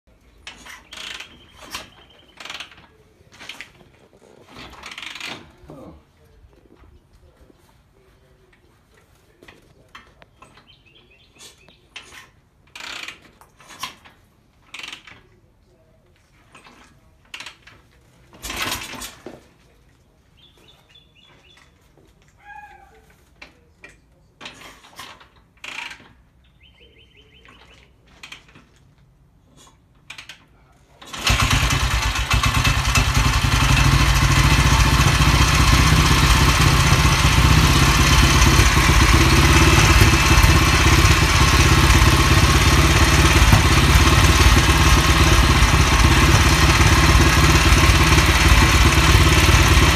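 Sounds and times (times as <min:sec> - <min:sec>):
motorcycle engine kicked over: 0:00.9 - 0:05.8, 0:16.4 - 0:19.6, 0:31.0 - 0:49.9
motorcycle engine running: 0:31.1 - 0:49.9.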